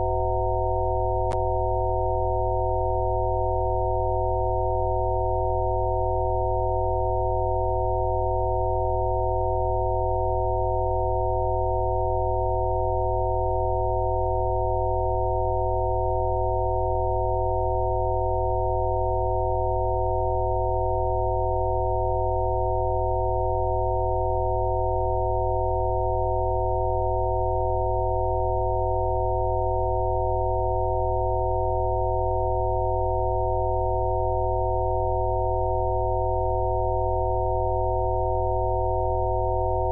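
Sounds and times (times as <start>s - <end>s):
sine tone drone: 0.0s - 39.9s.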